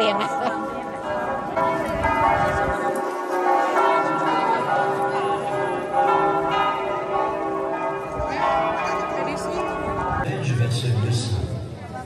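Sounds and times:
church bells ringing: 0.0 - 10.7.

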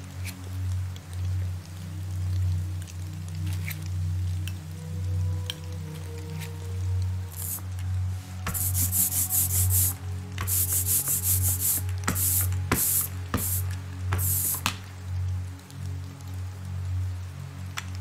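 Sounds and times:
soft background music: 0.0 - 18.0
roller hissing through ink: 7.3 - 14.8.

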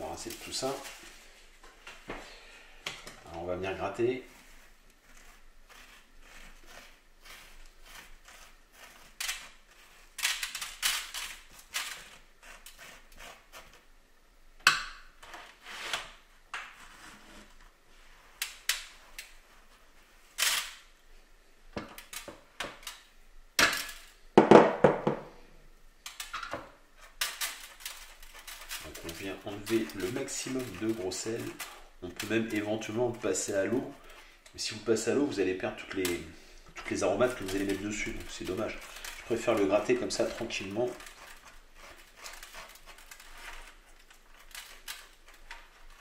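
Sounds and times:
gritty salt scraping: 0.0 - 1.4, 3.2 - 13.8, 27.0 - 46.0.

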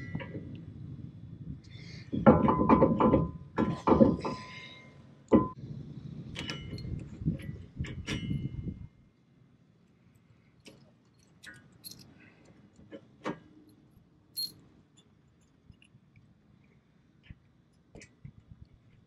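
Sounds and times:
metal parts clinking and rattling: 10.6 - 12.3, 13.7 - 15.9.

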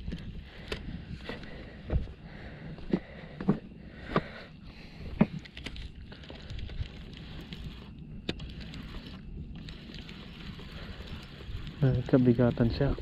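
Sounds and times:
wind noise on microphone: 0.0 - 2.1, 5.0 - 13.0.

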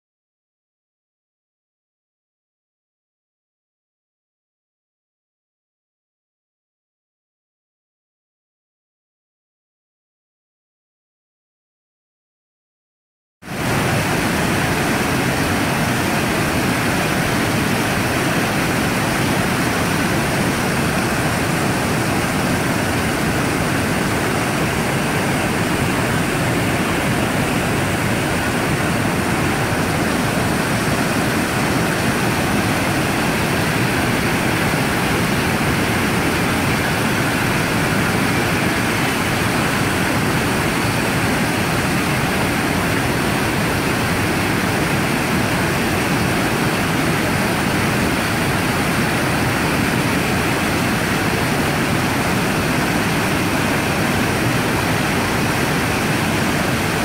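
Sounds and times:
waterfall rushing: 13.5 - 57.0.

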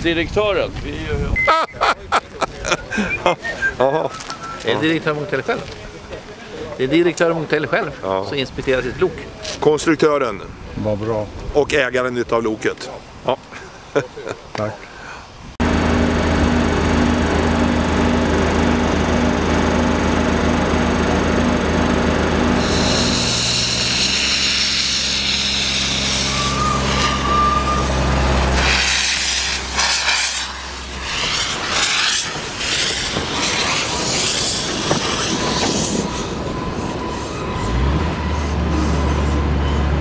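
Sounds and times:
steam locomotive hissing steam: 15.0 - 40.0
diesel locomotive idling drone: 15.6 - 40.0
steam locomotive chuffing: 15.6 - 40.0.

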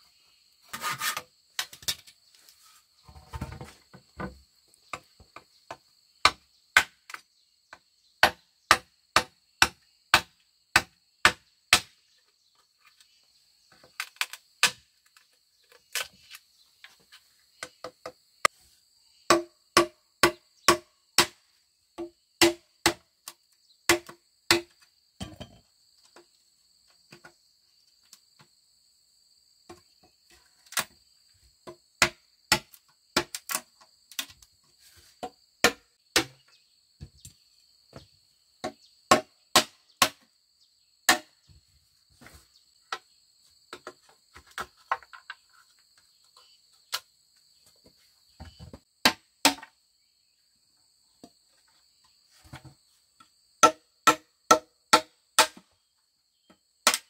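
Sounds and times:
tool knocking on bamboo: 19.3 - 21.3.

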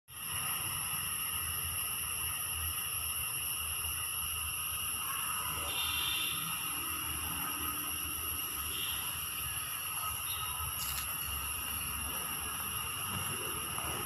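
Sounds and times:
high-pitched insect chorus: 0.1 - 14.0.

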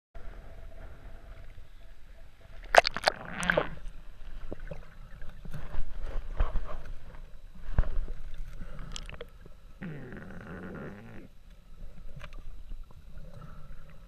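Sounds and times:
muffled underwater sound: 0.2 - 14.0
water splashes: 2.5 - 6.4
rush of bubbles: 2.7 - 3.7
small underwater clicks: 7.7 - 9.6, 11.4 - 14.0.

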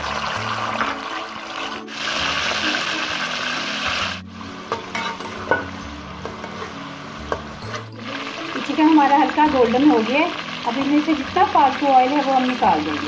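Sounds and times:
chicken sizzling in hot fat: 0.0 - 13.0
metal spatula scraping pan: 4.7 - 8.0.

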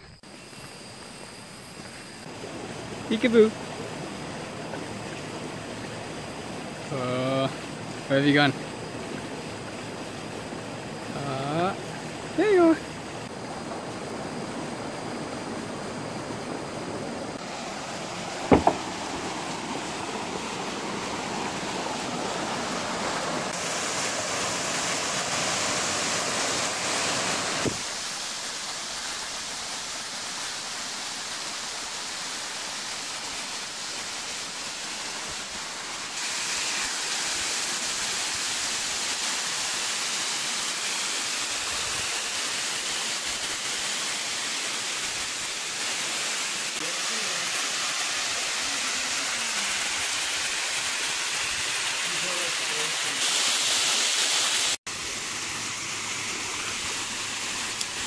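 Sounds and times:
waterfall rushing: 2.2 - 58.0
sharp double knock: 18.5 - 18.8.

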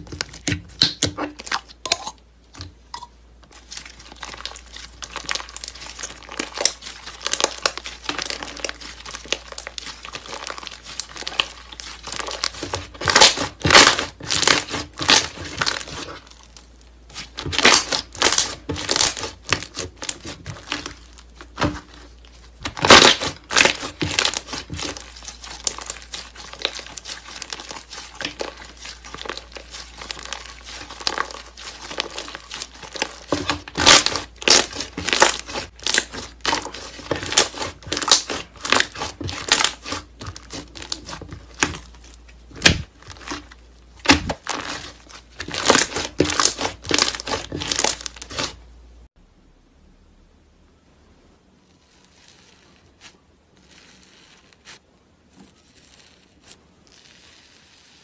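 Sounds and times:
hands squeezing sticky slime: 3.5 - 48.6.

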